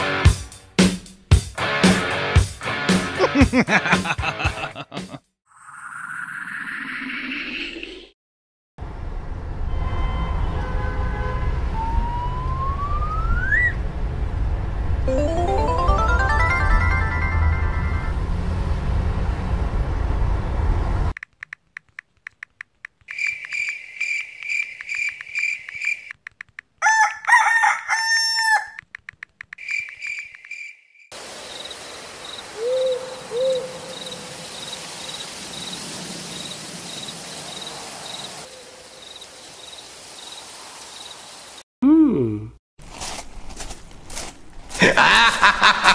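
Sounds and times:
music: 0:00.0 - 0:05.2, 0:15.1 - 0:18.1
string of clicks: 0:21.2 - 0:23.8, 0:24.4 - 0:26.8, 0:28.8 - 0:30.6
crickets chirping: 0:23.1 - 0:26.1, 0:29.6 - 0:41.6
loud crowing call: 0:26.8 - 0:28.8
low hoots: 0:32.6 - 0:34.0.

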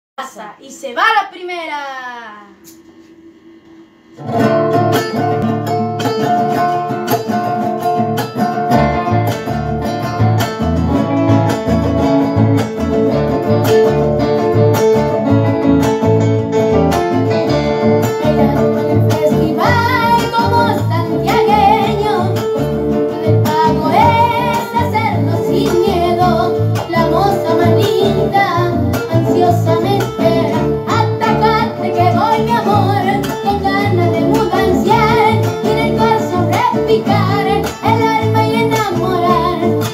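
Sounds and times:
acoustic guitar strumming: 0:02.6 - 0:39.9
boy singing: 0:18.2 - 0:39.9.

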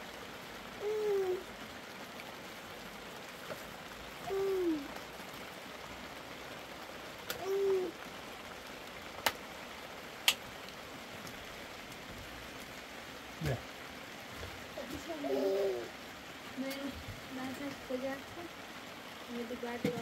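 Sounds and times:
rain hissing: 0:00.0 - 0:20.0
bird hooting: 0:00.8 - 0:01.5, 0:04.2 - 0:04.9, 0:07.4 - 0:08.0.

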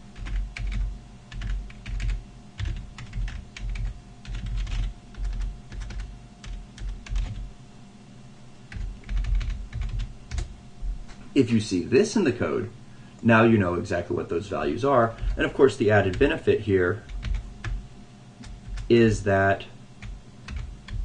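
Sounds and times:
typing on a computer keyboard: 0:00.2 - 0:07.5, 0:08.7 - 0:10.5, 0:17.1 - 0:17.8, 0:18.4 - 0:18.9, 0:20.0 - 0:21.0.

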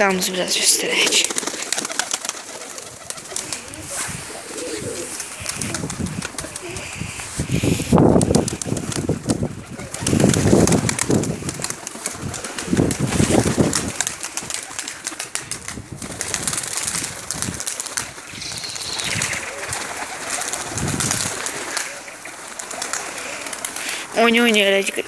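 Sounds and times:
pigeon wings flapping: 0:00.2 - 0:24.6
pigeons cooing: 0:00.8 - 0:10.5, 0:18.3 - 0:24.1.

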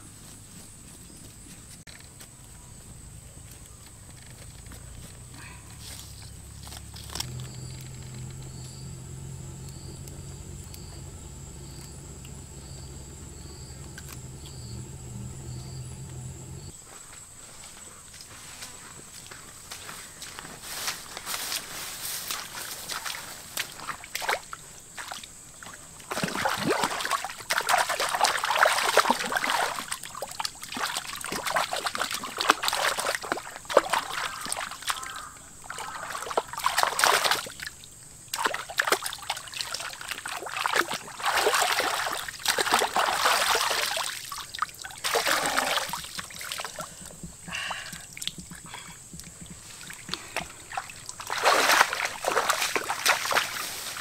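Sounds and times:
water splashing and sloshing: 0:22.3 - 0:54.0.

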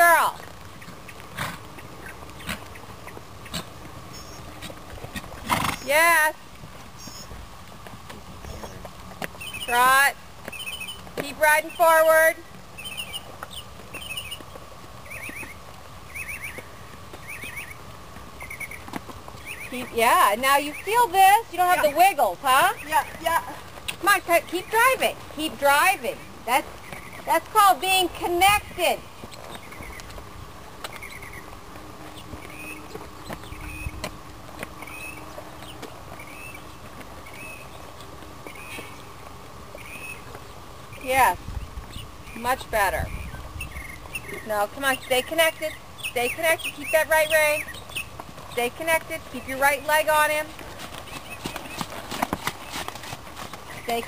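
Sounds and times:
faint steady hum: 0:00.0 - 0:54.0
bird warbling chirp: 0:01.8 - 0:04.6, 0:07.0 - 0:07.3, 0:09.4 - 0:11.1, 0:12.8 - 0:17.8, 0:18.4 - 0:18.8, 0:19.4 - 0:21.2, 0:39.8 - 0:40.3, 0:40.9 - 0:48.1.

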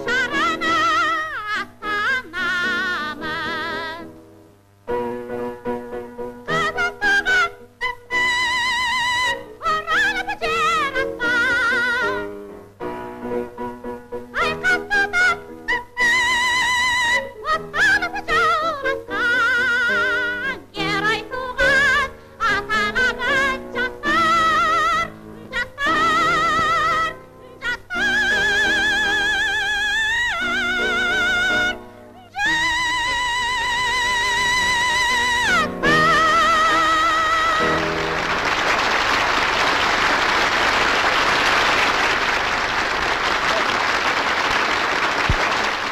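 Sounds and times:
operatic soprano singing: 0:00.0 - 0:04.1, 0:06.5 - 0:12.3, 0:14.3 - 0:37.8.

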